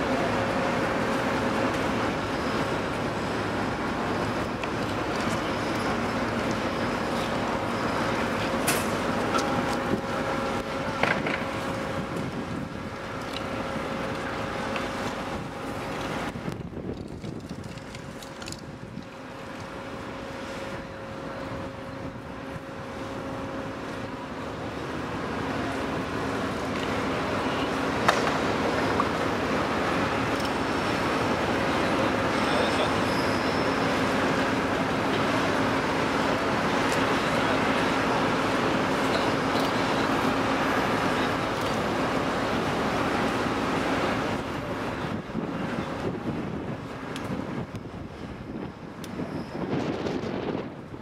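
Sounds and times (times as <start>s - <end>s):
machinery humming: 0.0s - 51.0s.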